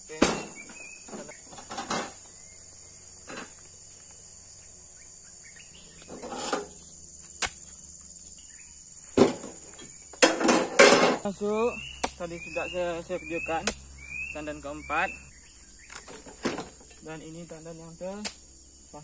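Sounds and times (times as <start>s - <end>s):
high-pitched insect chorus: 0.0s - 19.0s
rustles and thumps: 0.1s - 2.3s, 9.0s - 11.3s, 15.9s - 17.0s.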